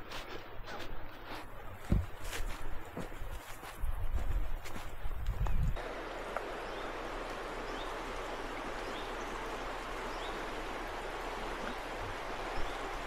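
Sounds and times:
river water rushing: 5.8s - 13.0s.

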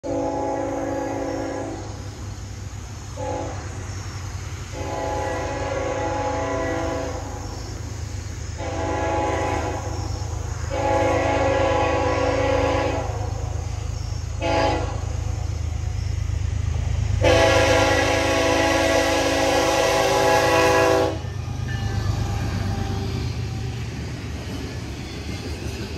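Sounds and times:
locomotive horn blasts: 0.0s - 1.9s, 3.2s - 3.7s, 4.7s - 7.3s, 8.6s - 9.9s, 10.7s - 13.4s, 14.4s - 15.2s, 17.2s - 23.1s.

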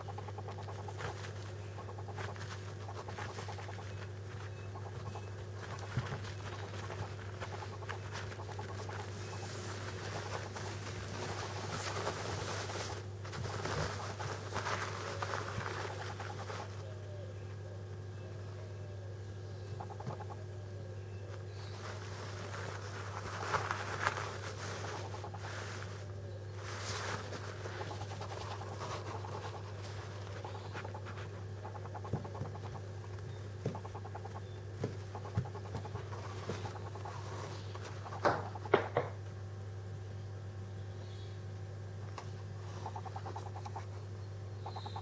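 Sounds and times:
parrot chicks pulsed calls: 0.0s - 11.6s, 15.8s - 18.5s, 19.2s - 39.1s, 42.7s - 45.0s
chicks shuffling on blanket: 0.0s - 16.8s, 21.3s - 38.7s
steady low hum: 0.0s - 45.0s.

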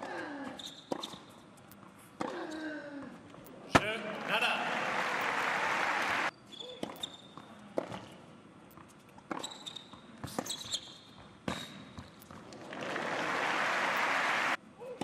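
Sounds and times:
shoe squeaks: 0.6s - 2.7s, 6.3s - 8.1s, 8.8s - 12.4s
crowd applause: 4.0s - 6.3s, 12.6s - 14.6s.

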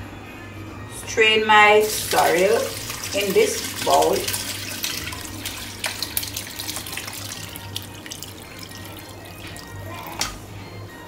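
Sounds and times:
liquid pouring through strainer: 1.8s - 9.9s.

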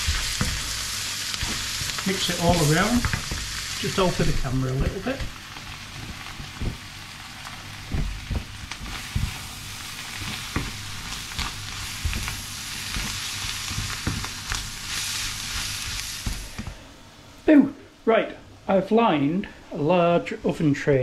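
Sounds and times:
food sizzling in a frying pan: 0.0s - 16.7s.

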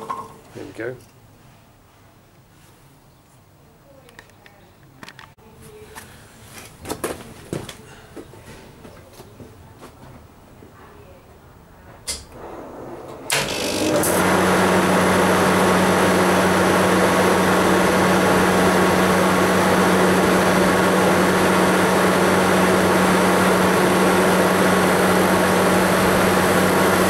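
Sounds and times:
compressor running with low hum: 12.2s - 27.0s.

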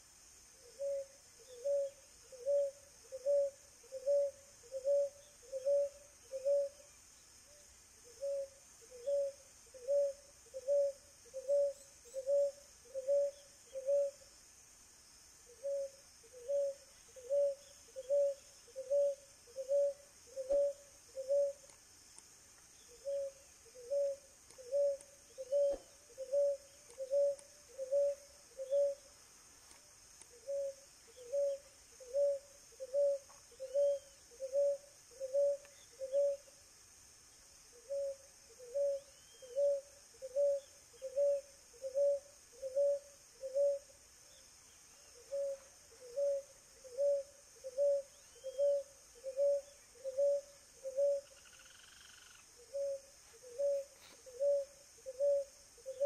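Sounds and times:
dove cooing: 0.6s - 6.8s, 8.0s - 14.2s, 15.6s - 21.6s, 22.9s - 29.1s, 30.4s - 36.4s, 37.8s - 43.9s, 45.2s - 51.8s, 52.6s - 56.0s.

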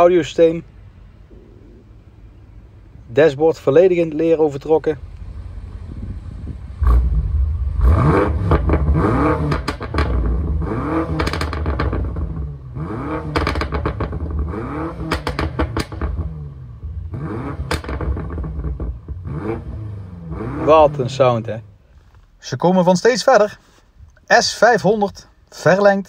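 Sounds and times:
exhaust crackles: 0.0s - 24.3s
car engine revving: 5.0s - 21.7s.

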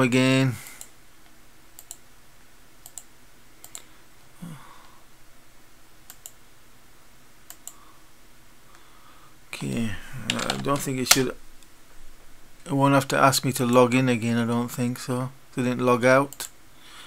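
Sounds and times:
computer mouse clicking: 0.6s - 2.0s, 2.8s - 3.9s, 6.1s - 6.4s, 7.5s - 7.8s.

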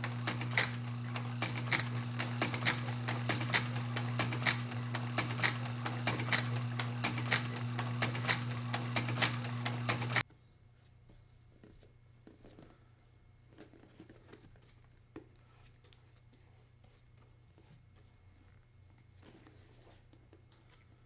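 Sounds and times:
sewing machine motor hum: 0.0s - 10.2s.

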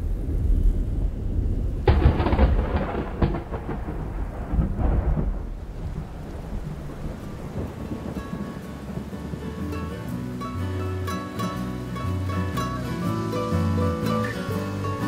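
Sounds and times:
thunderclap: 0.0s - 10.3s
thunder rumbling: 0.0s - 12.8s
rain: 0.0s - 15.0s.

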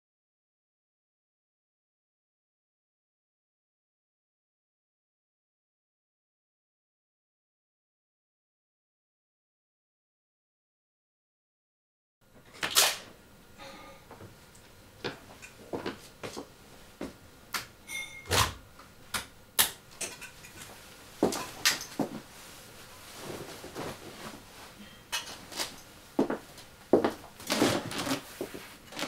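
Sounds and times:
clothing rustle: 20.6s - 29.0s
footsteps on wooden floor: 26.2s - 28.6s.

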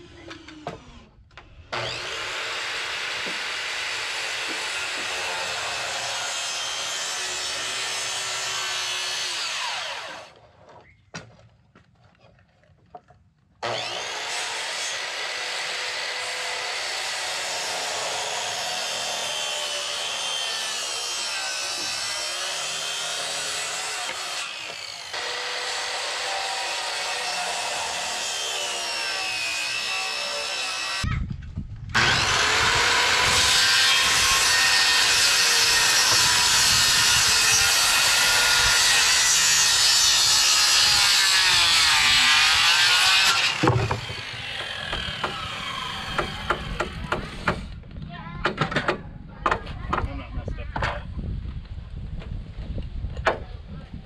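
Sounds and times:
circular saw cutting board: 32.0s - 47.6s.

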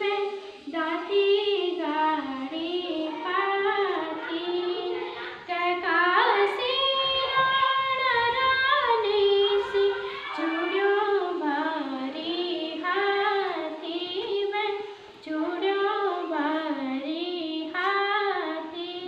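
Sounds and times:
girl singing unaccompanied: 0.0s - 19.0s.

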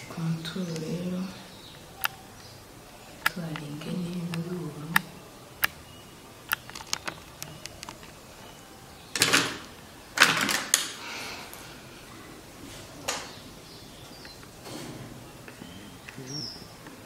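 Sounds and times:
plastic clicks and taps: 6.5s - 8.2s.

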